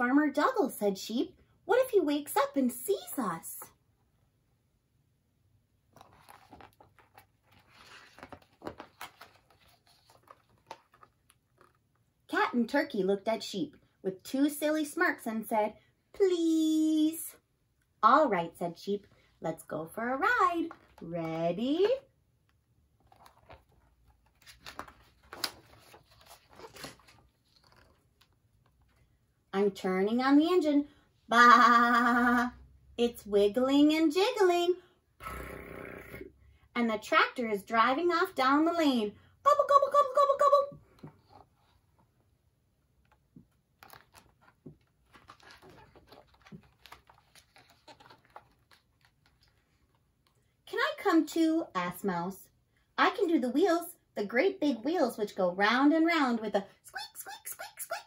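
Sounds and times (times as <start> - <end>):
book pages turning: 5.9 - 12.0, 22.9 - 29.2, 42.9 - 50.4.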